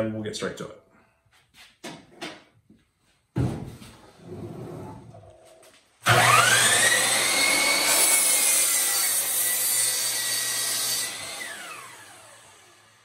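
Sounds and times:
miter saw motor whining: 6.1 - 13.0
saw blade cutting wood board: 6.1 - 13.0.

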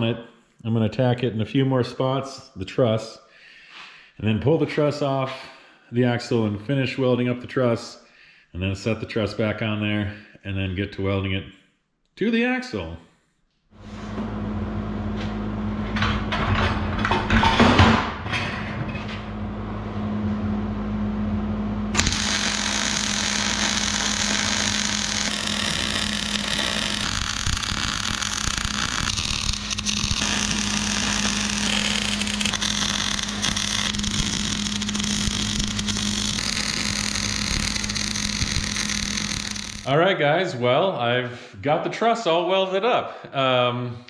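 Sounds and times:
steady hum: 19.4 - 40.0
welder arc crackling: 21.9 - 39.9.

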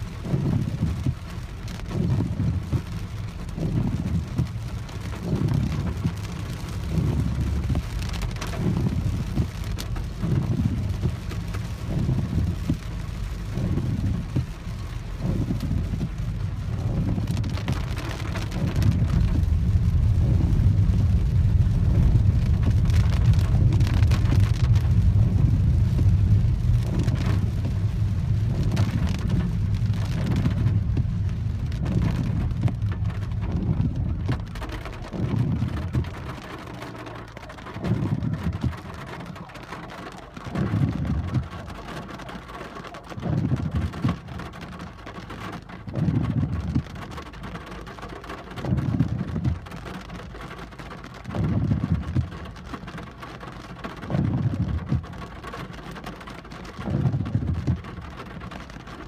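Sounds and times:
car engine: 0.0 - 59.0
heavy rain on a car: 0.0 - 59.0
tyres rumbling on wet road: 0.0 - 59.0.

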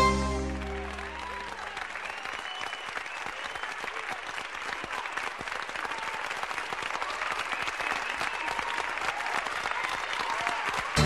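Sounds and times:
whistles: 0.0 - 3.9, 7.4 - 8.8
audience applauding: 0.0 - 11.0.

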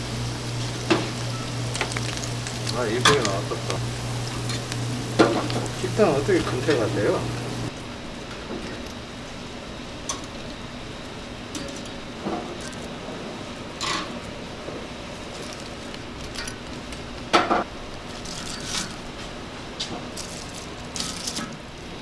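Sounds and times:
steady kitchen hiss: 0.0 - 22.0
metal tongs clinking on rack: 2.7 - 3.6.

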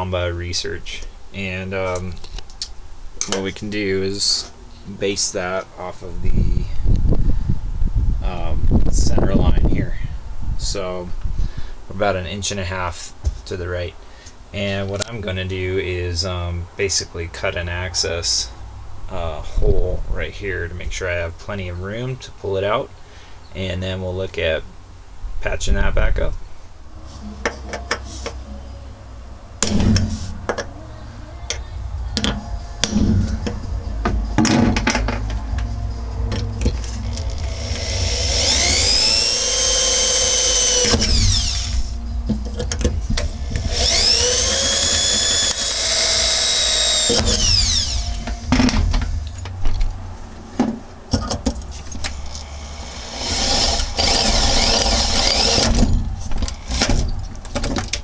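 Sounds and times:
power drill boring through sheet steel: 37.1 - 42.0, 43.5 - 48.3, 52.4 - 55.9.

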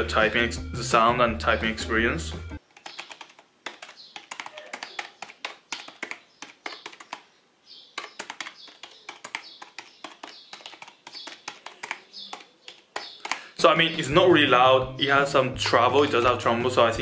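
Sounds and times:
keyboard typing: 2.6 - 7.3, 7.9 - 14.0.

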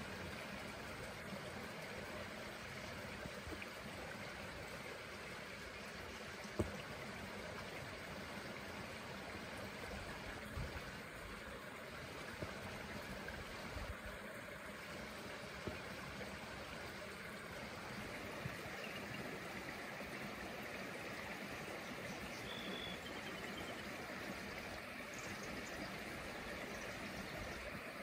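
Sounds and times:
outdoor background hiss: 0.0 - 28.0
faint high chirp: 22.3 - 23.8.

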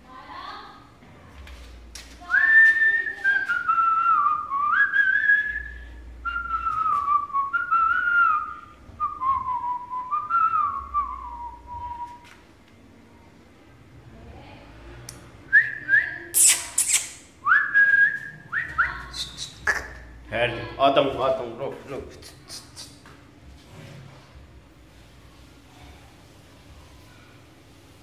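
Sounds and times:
person whistling a tune: 2.3 - 12.2, 15.6 - 18.9.

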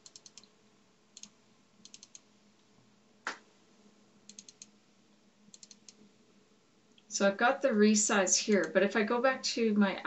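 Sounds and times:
computer mouse clicks: 0.0 - 0.5, 1.2 - 2.3, 4.3 - 4.8, 5.5 - 6.0, 8.5 - 8.7.

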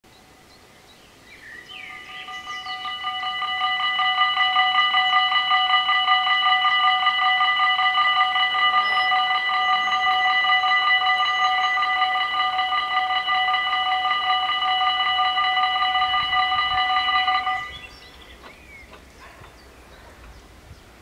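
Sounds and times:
level crossing bells ringing: 1.9 - 17.9.

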